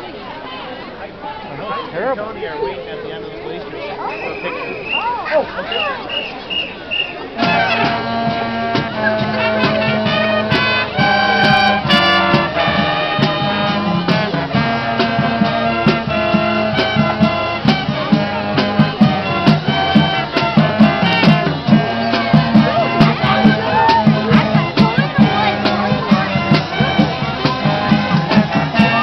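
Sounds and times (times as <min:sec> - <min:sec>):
marching band brass: 0:01.7 - 0:29.0
drums striking steady beat: 0:07.4 - 0:29.0.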